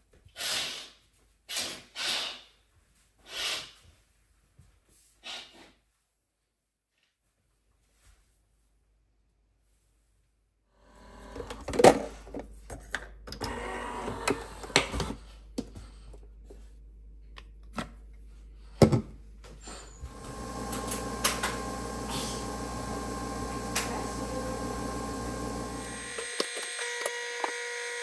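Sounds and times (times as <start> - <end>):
coffee machine humming: 13.4 - 14.9, 20.0 - 28.0.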